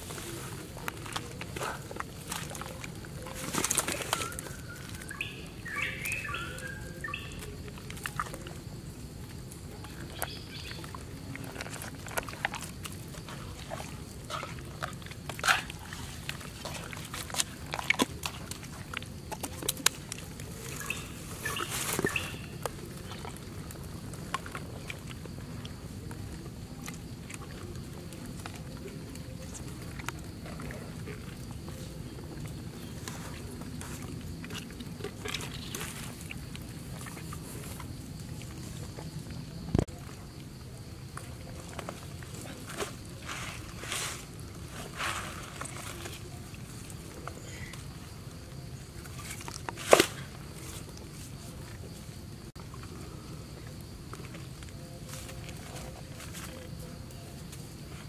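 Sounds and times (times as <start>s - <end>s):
birds chirping: 2.7s - 7.7s, 20.6s - 23.2s.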